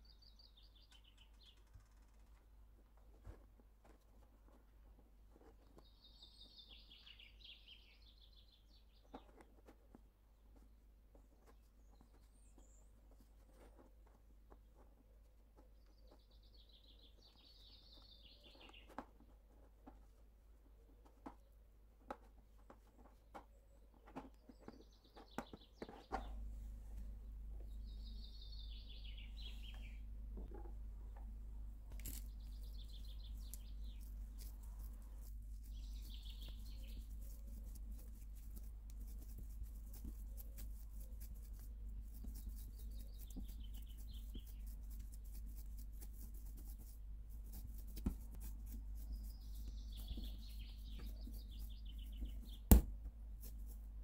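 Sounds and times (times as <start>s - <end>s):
small birds chirping: 0.0s - 54.0s
steady low hum: 26.3s - 54.0s
hands kneading dough: 32.0s - 54.0s.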